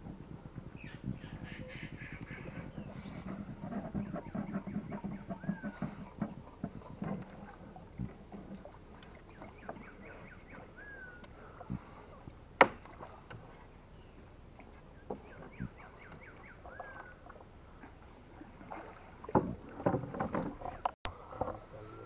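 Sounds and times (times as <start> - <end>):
whistled glides: 0.6 - 7.6, 9.1 - 12.2, 15.0 - 17.3
chirping animal calls: 0.8 - 6.2.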